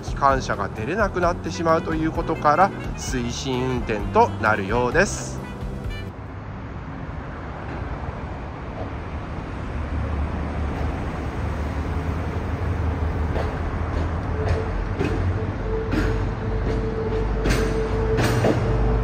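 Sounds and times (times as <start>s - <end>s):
rail cars rolling over rails: 6.9s - 19.0s.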